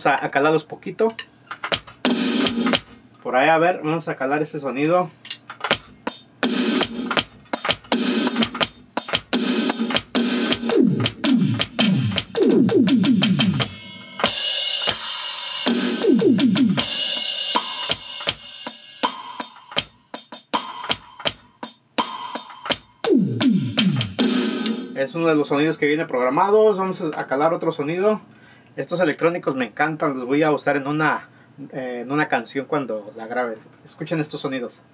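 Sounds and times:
electronic drum hits: 0:01.7 - 0:02.9, 0:06.4 - 0:20.0, 0:20.6 - 0:25.0.

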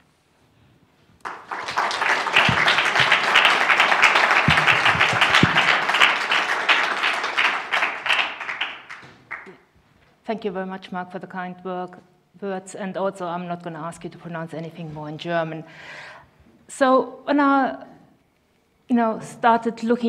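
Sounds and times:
audience applauding: 0:01.2 - 0:09.6.

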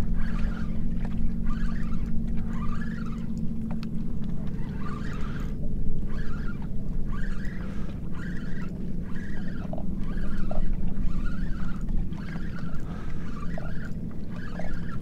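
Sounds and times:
fishing reel squeaky whir: 0:00.0 - 0:15.0
water noise: 0:00.0 - 0:15.0
wind: 0:00.0 - 0:15.0.

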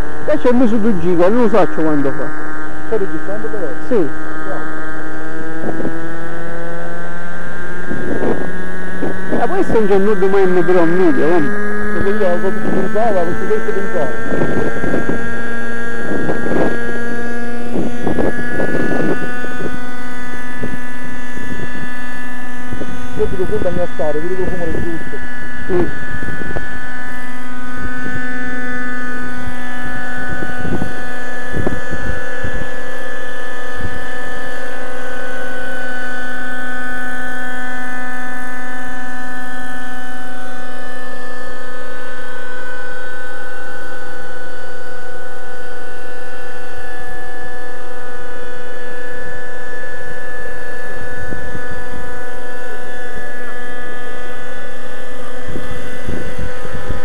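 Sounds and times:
low buffeting: 0:00.0 - 0:43.7
model helicopter engine whine: 0:00.0 - 0:57.0.

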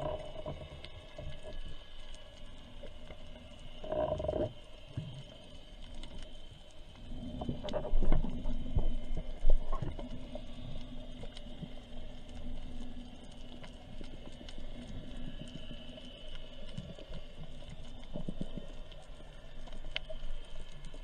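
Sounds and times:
faint clicks: 0:00.0 - 0:21.0
underwater low hum: 0:00.0 - 0:21.0.

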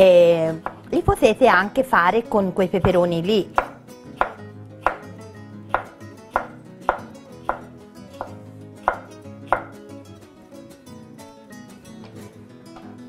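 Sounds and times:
knife chopping on wooden board: 0:02.9 - 0:05.1, 0:05.7 - 0:09.8.

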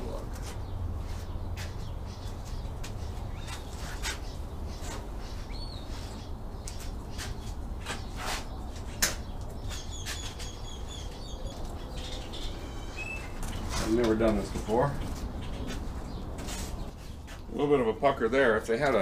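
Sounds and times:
small birds chirping: 0:00.0 - 0:19.0.

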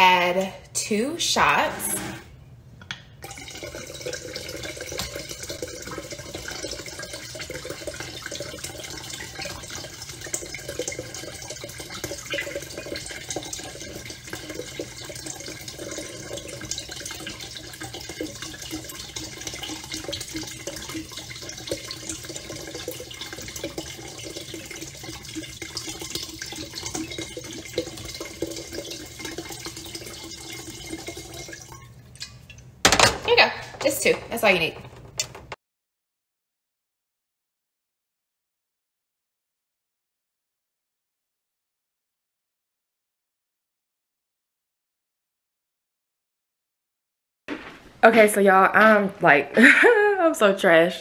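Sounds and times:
liquid pouring into liquid: 0:03.2 - 0:33.0.

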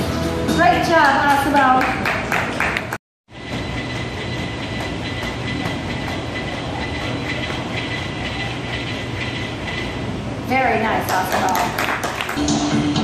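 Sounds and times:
mechanical hum and hiss: 0:03.3 - 0:11.8.

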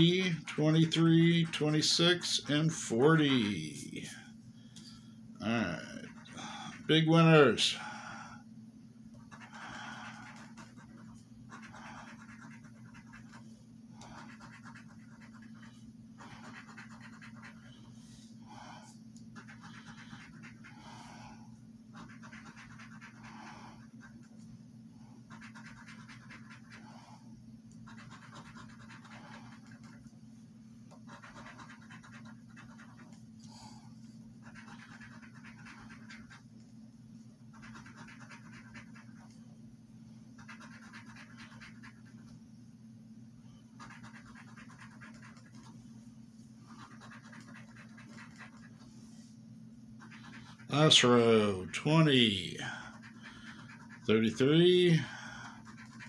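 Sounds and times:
coin scratching lottery ticket: 0:00.0 - 0:03.6, 0:09.2 - 0:13.4, 0:14.0 - 0:17.6, 0:19.4 - 0:20.7, 0:21.9 - 0:24.2, 0:25.3 - 0:26.8, 0:27.8 - 0:30.0, 0:31.0 - 0:33.1, 0:34.4 - 0:36.4, 0:37.5 - 0:39.3, 0:40.4 - 0:42.1, 0:43.8 - 0:45.7, 0:46.7 - 0:48.8, 0:50.0 - 0:56.0
steady low hum: 0:00.0 - 0:56.0.

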